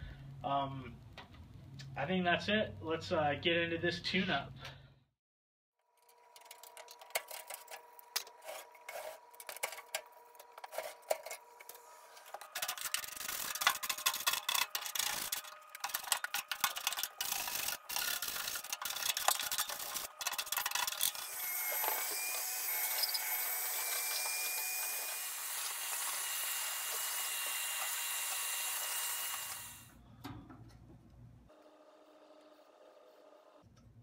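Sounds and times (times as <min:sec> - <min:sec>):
hand scraper grating on metal pan: 0:12.5 - 0:28.7
vacuum running with whistle: 0:21.2 - 0:29.7.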